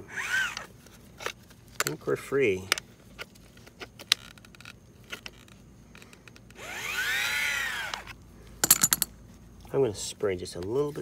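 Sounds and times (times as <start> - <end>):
whirring gear whine: 0.0 - 0.7, 6.3 - 8.2.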